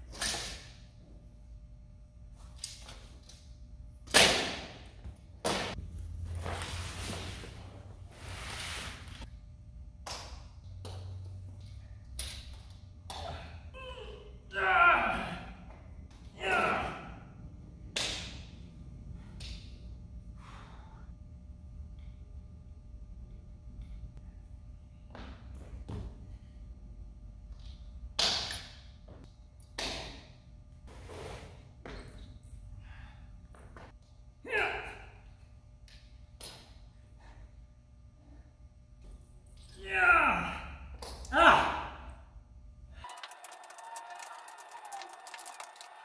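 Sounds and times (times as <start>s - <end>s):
sharp snap: 17.9s - 18.5s
person sighing or grunting: 39.8s - 42.0s.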